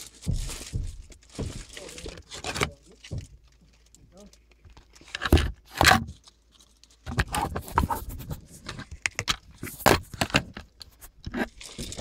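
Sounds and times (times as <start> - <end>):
phone handling clicks and rustles: 4.5 - 6.2, 7.0 - 12.0.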